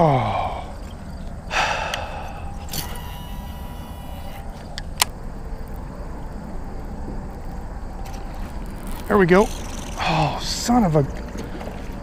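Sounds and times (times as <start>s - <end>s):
thin high whine: 0.2s - 4.8s
lure blade churning water: 1.9s - 4.6s, 8.0s - 10.8s
sharp click: 4.6s - 5.2s.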